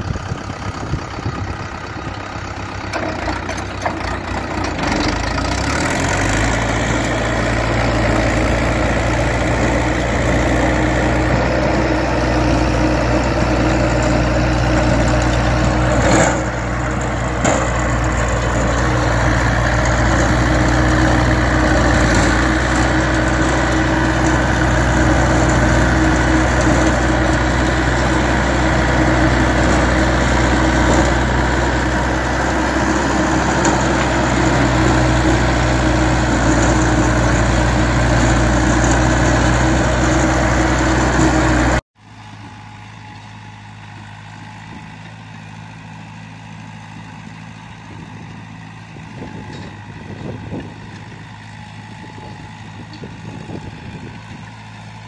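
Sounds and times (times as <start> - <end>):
diesel tractor engine: 0.0 - 55.0
rotary tiller churning soil: 0.0 - 55.0.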